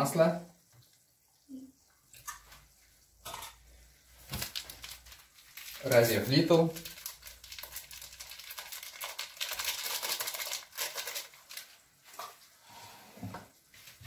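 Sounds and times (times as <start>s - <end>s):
paper sachet crinkling: 4.2s - 11.8s.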